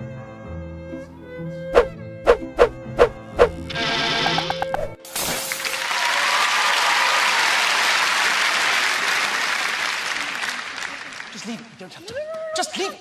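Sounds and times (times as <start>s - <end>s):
plucked string music: 1.7s - 5.0s
audience applauding: 5.5s - 12.0s.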